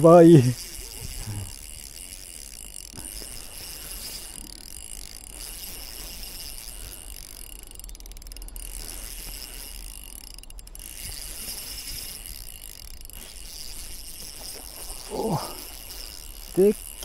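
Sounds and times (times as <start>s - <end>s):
fishing reel whirring: 0.0s - 17.0s
reel rapid ticking: 0.0s - 17.0s.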